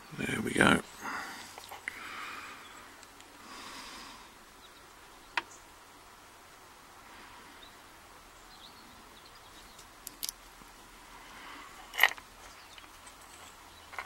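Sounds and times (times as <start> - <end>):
small metal clicks of a padlock: 10.0 - 10.4.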